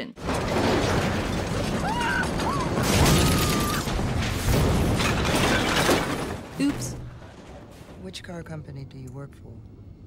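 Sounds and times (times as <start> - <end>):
crashing roar of smashing debris: 0.2 - 8.0
fire: 0.2 - 10.0.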